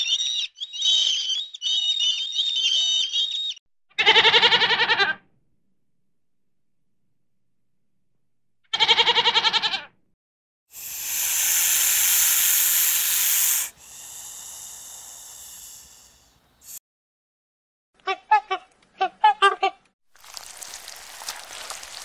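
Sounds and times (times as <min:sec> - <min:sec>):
goat bleating: 0:04.0 - 0:05.2, 0:08.7 - 0:09.9
snake hissing: 0:10.7 - 0:16.8.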